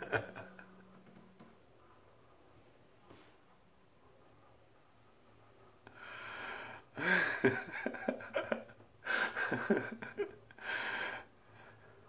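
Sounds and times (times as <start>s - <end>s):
man laughing hard: 0.0s - 0.8s, 7.0s - 10.4s.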